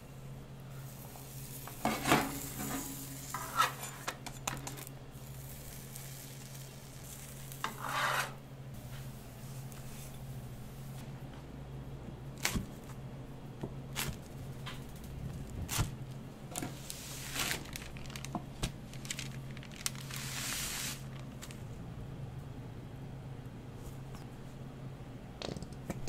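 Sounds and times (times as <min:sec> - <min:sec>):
low hum of kitchen equipment: 0:00.0 - 0:26.0
paper rustling and crinkling: 0:16.6 - 0:21.6.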